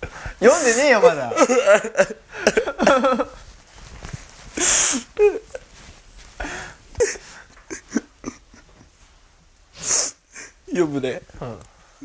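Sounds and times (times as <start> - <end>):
man crying: 0.4 - 3.4, 4.6 - 5.7, 6.9 - 8.8.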